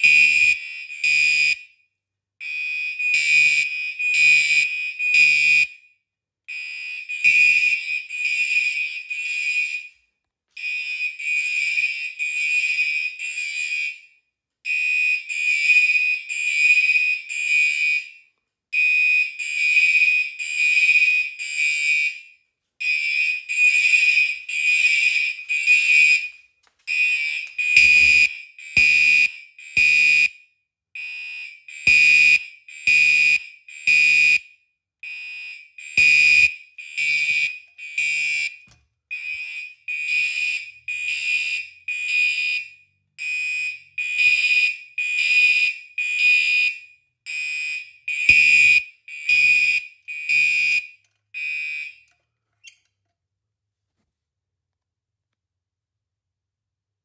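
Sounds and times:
fire alarm horns blasting: 0.0s - 1.8s, 2.4s - 5.9s, 6.5s - 30.4s, 31.0s - 52.0s.

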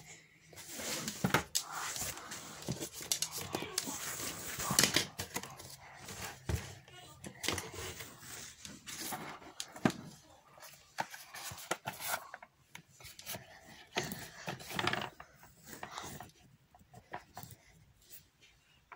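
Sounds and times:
paper and cardboard sliding: 0.5s - 5.3s.

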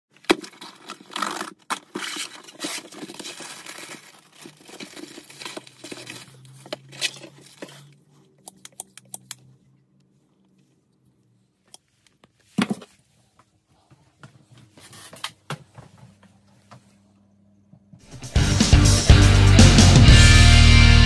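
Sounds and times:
cardboard box rustling: 0.2s - 7.9s
plastic bag crinkling: 0.2s - 7.9s.

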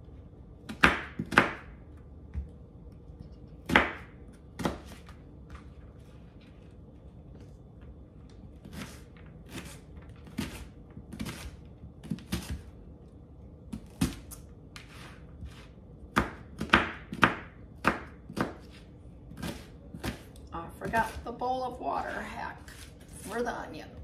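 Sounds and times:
knife chopping onion on board: 0.7s - 2.4s, 3.6s - 5.2s, 8.6s - 12.7s, 13.7s - 21.2s.

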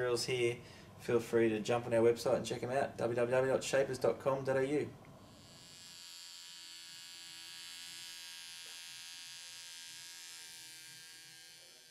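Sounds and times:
electric scissors cutting cloth: 5.3s - 11.9s.

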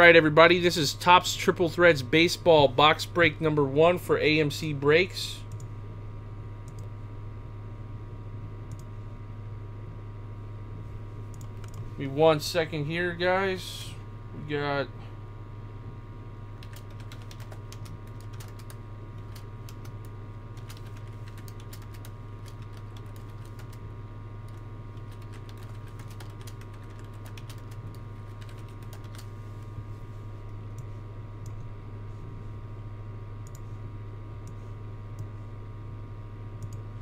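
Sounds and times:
low electrical hum: 0.0s - 37.0s
typing on keyboard: 16.6s - 20.0s, 20.6s - 23.8s, 24.5s - 29.3s.

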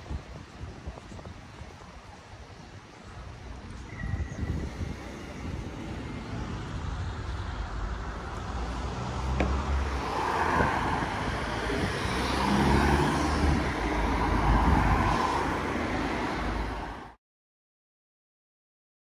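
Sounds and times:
cars driving past: 3.9s - 17.2s.

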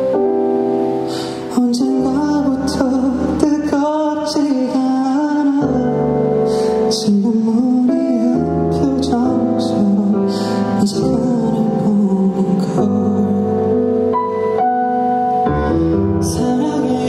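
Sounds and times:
person singing a ballad: 0.0s - 17.0s
soft instrumental accompaniment: 0.0s - 17.0s.

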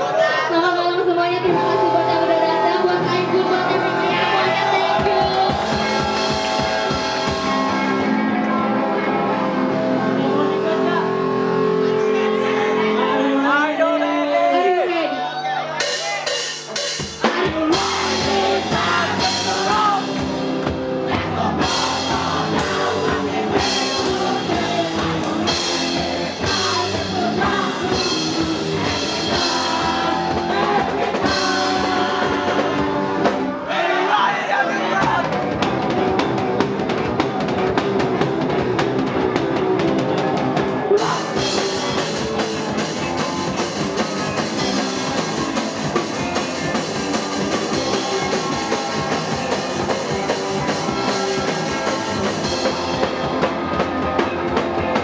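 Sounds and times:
drums: 0.0s - 55.0s
live band playing upbeat song: 0.0s - 55.0s
person singing: 16.2s - 20.4s, 21.1s - 33.4s.

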